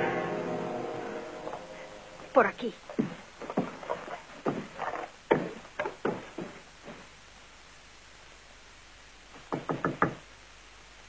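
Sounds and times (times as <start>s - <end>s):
footsteps on wooden floor: 2.9s - 7.1s.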